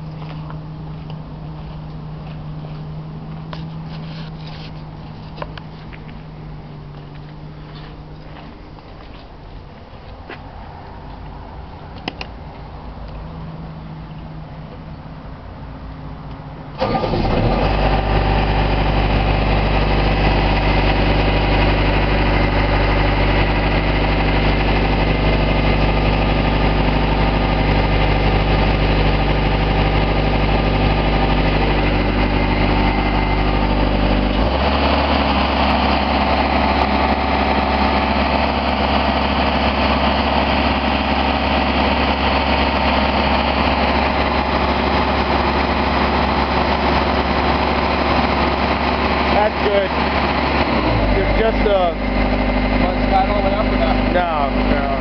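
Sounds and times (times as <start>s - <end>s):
engine starting and running: 16.2s - 55.0s.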